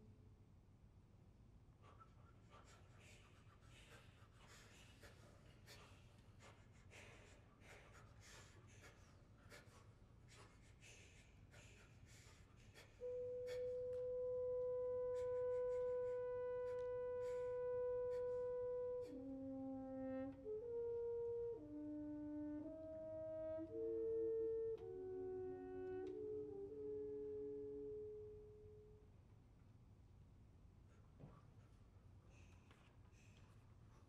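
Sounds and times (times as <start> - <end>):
french horn holding a note: 13.0 - 29.1.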